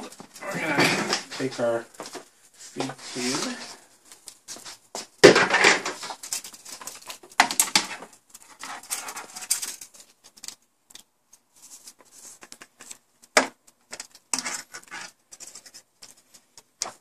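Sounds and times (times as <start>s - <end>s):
plastic tube handling rustles: 0.0s - 10.6s.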